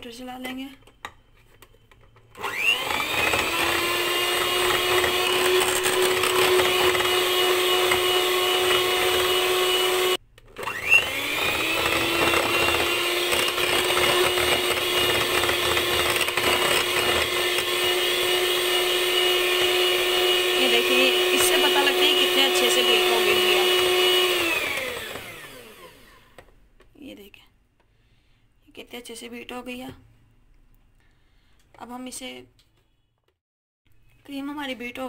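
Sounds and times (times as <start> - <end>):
electric hand mixer whining: 2.3 - 26.5.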